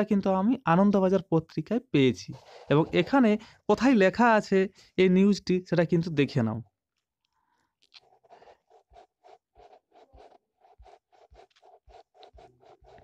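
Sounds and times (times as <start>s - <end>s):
faint rhythmic scratching: 0.0s - 3.9s, 7.0s - 13.0s.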